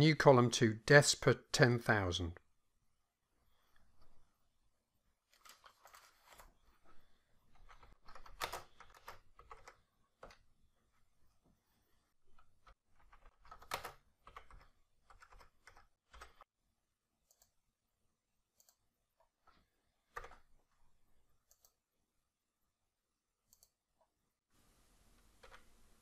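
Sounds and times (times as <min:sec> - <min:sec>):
typing on keyboard: 0:07.5 - 0:10.4, 0:12.4 - 0:16.5
mouse clicks: 0:23.5 - 0:23.8
faint steady hiss: 0:24.5 - 0:26.0.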